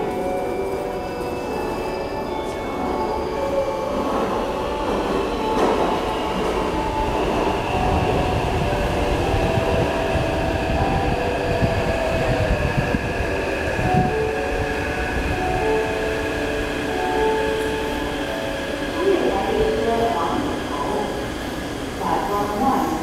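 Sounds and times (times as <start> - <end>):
rumble of wheels on rails: 0.0 - 23.0.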